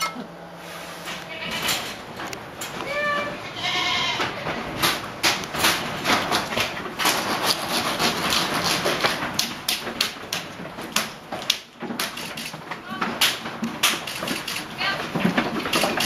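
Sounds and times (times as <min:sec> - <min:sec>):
goat bleating: 0:01.2 - 0:01.7, 0:02.8 - 0:04.4
goat hooves clattering on floor: 0:01.2 - 0:16.0.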